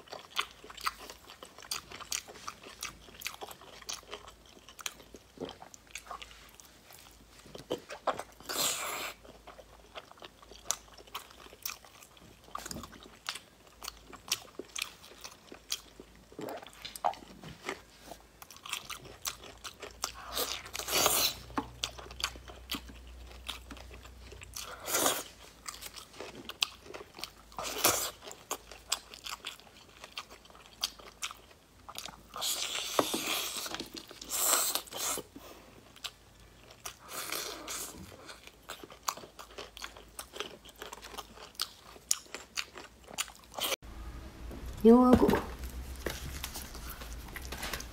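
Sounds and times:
person chewing: 0.0s - 43.8s, 45.6s - 47.9s.

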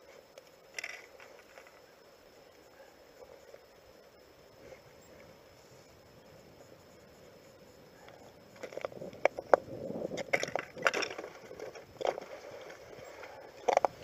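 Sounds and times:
gear clicking and rustling: 8.1s - 14.0s.

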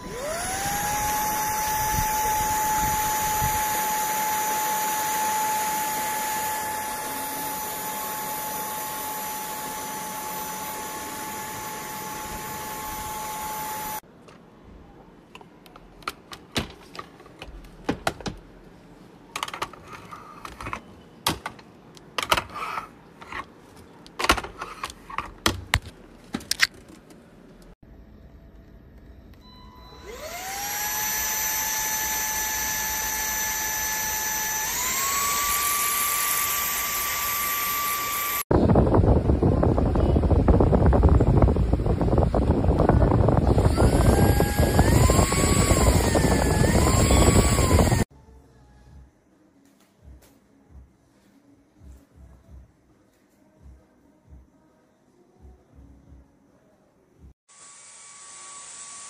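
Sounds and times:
vacuum cleaner motor whining: 0.0s - 14.0s, 29.9s - 38.5s, 39.8s - 48.1s.

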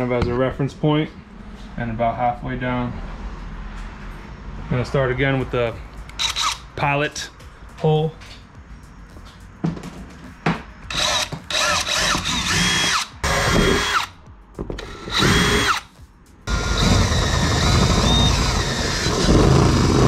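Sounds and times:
cordless drill whining: 10.9s - 14.1s, 14.8s - 15.8s, 16.5s - 20.0s.

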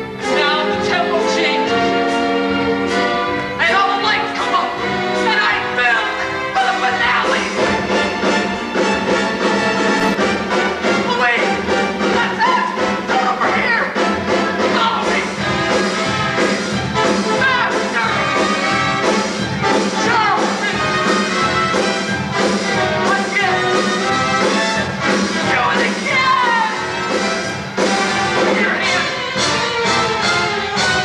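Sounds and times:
brass-led orchestra dance music: 7.7s - 12.1s, 13.9s - 31.0s.

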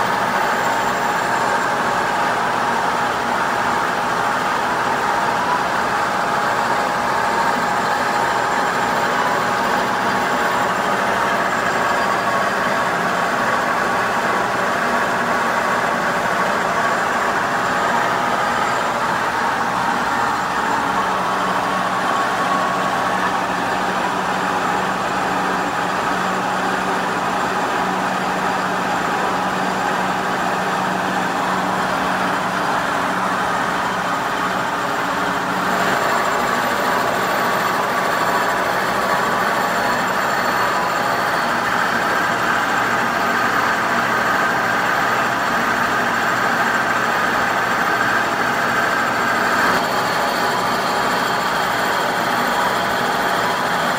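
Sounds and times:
milling machine drive humming: 0.0s - 53.9s.

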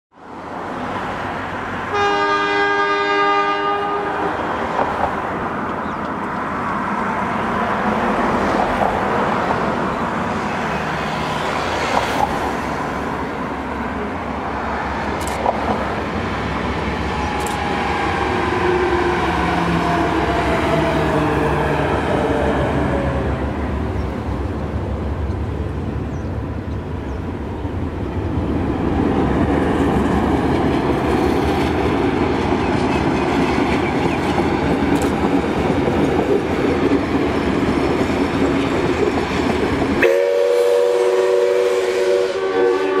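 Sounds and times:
railcar wheels rumbling: 0.2s - 43.0s
train horn: 1.9s - 4.7s, 40.0s - 43.0s
sharp clicks: 15.2s - 15.8s, 17.3s - 17.7s, 34.9s - 35.3s.

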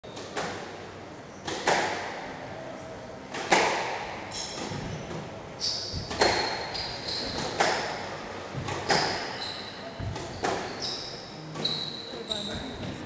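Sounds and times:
squash ball smacks: 3.3s - 5.2s, 5.9s - 6.6s, 7.3s - 8.0s
shoes squeaking on wooden floor: 4.3s - 13.0s.

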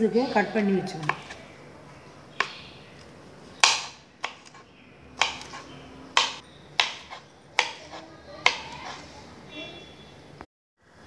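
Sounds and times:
knife chopping on cutting board: 1.0s - 1.4s, 3.6s - 4.6s, 5.2s - 9.0s.

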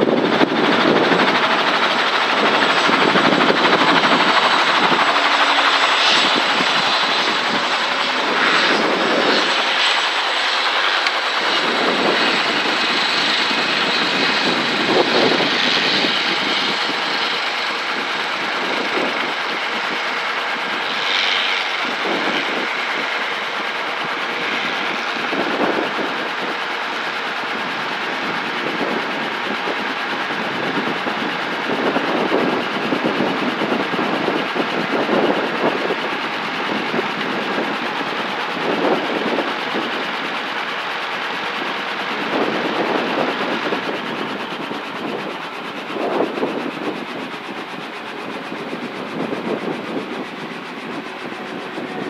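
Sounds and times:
helicopter engine and rotor: 0.0s - 52.0s.

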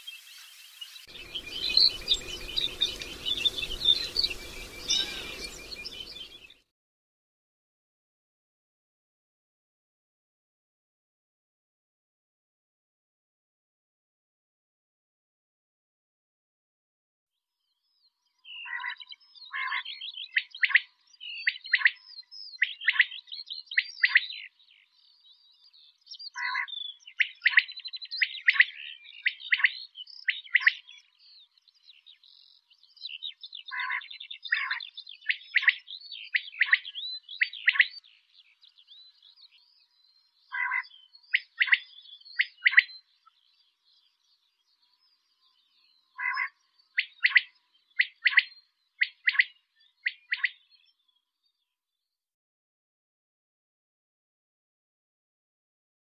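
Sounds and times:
quail calling: 1.1s - 6.5s, 18.6s - 19.9s, 26.4s - 27.7s, 33.7s - 35.8s, 40.5s - 42.9s, 46.2s - 50.6s.

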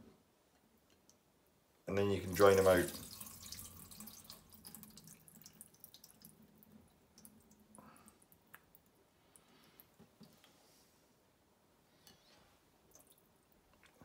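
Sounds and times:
water dripping: 2.0s - 10.4s, 12.8s - 14.0s
water trickling into a steel sink: 2.2s - 10.0s.

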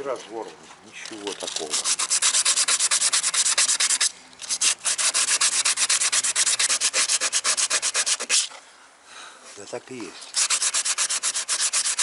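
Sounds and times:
sandpaper rubbing on plastic: 1.1s - 8.6s, 10.2s - 12.0s.

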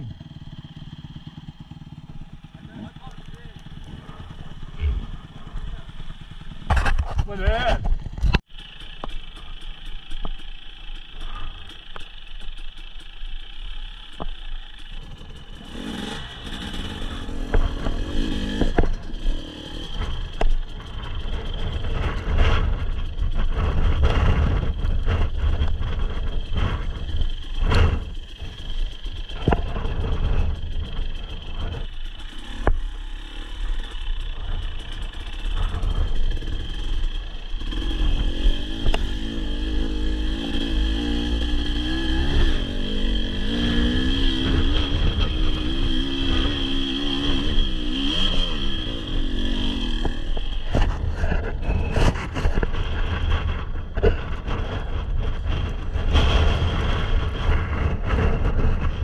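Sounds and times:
dirt bike engine revving: 0.0s - 59.0s
bike clattering over bumps: 0.1s - 59.0s.

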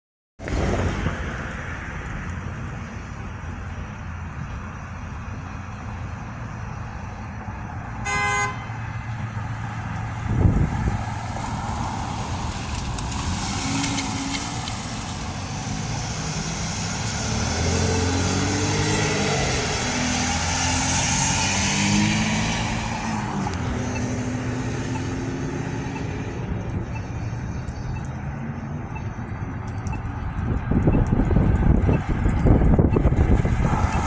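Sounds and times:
traffic noise: 0.4s - 34.0s
vehicle horn toot: 8.0s - 8.8s
vehicle driving past: 8.8s - 30.5s.

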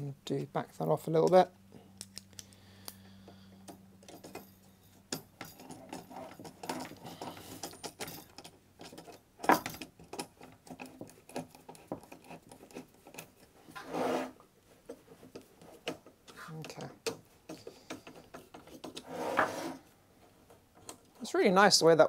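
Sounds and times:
light metallic clicks and rattles: 2.0s - 13.5s, 14.8s - 19.0s.

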